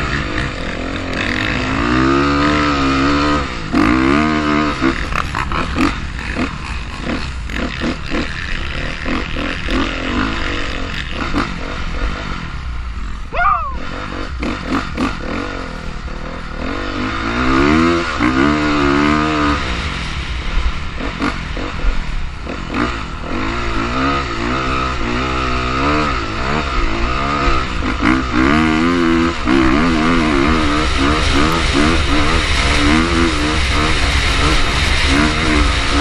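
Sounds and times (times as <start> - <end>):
dirt bike engine revving: 0.0 - 36.0.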